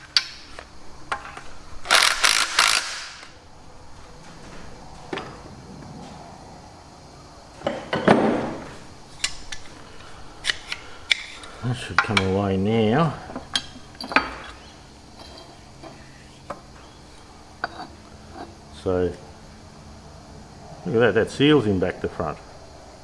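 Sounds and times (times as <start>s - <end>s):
tools clinking on metal: 13.4s - 14.6s.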